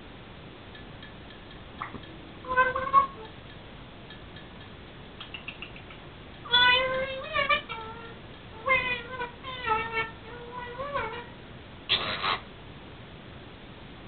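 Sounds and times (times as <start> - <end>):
parrot calling: 1.8 - 3.3, 5.2 - 12.5
faint clicks: 3.2 - 7.1.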